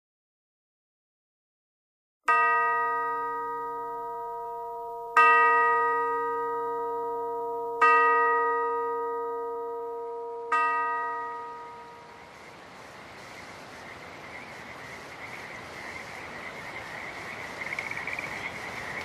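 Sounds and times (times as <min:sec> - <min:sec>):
ringing chime strikes: 0:02.3 - 0:12.1.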